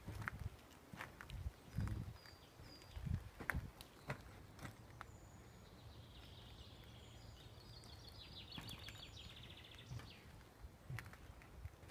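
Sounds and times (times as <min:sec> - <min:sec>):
soft footsteps: 0:00.0 - 0:05.1
songbirds singing: 0:01.1 - 0:11.9.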